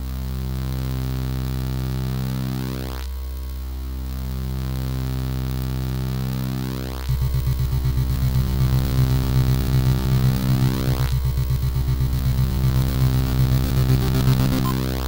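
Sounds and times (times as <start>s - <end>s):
buzzy square-wave drone: 0.0s - 15.0s
pulsing bass pattern: 7.1s - 15.0s.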